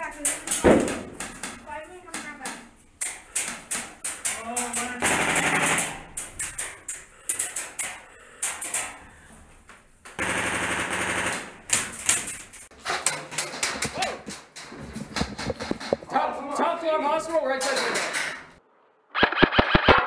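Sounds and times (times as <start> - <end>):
airsoft full-auto bursts: 5.0 - 6.0, 10.2 - 11.6, 19.2 - 20.0.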